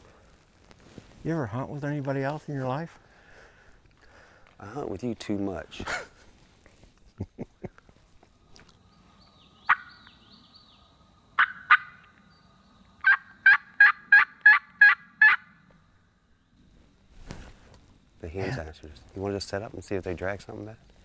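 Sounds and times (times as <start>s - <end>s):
turkey yelps on a mouth call: 11.4s - 12.0s, 13.0s - 15.5s.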